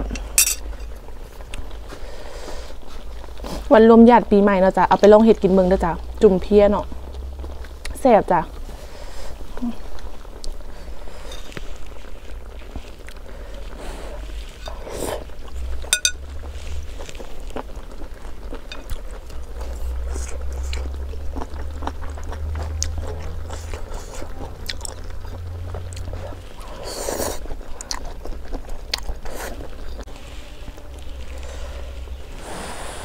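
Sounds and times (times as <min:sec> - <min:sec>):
low steady rumble: 0:00.0 - 0:33.0
person chewing food: 0:09.3 - 0:30.1
utensils clicking on plate: 0:16.0 - 0:16.2.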